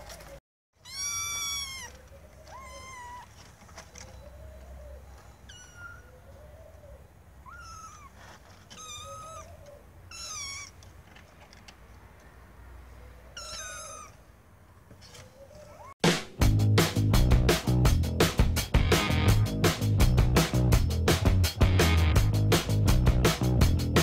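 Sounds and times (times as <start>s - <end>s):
kittens meowing: 0.8s - 3.5s, 4.5s - 10.9s, 13.3s - 14.4s, 15.4s - 16.0s.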